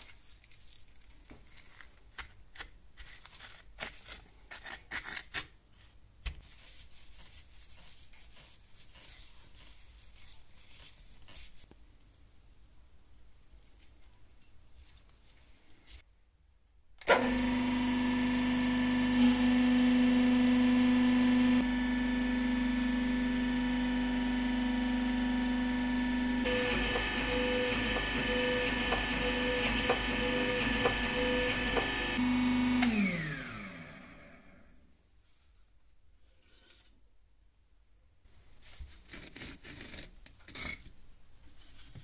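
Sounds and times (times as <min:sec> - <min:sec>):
hydraulic press motor humming: 0:17.0 - 0:34.6.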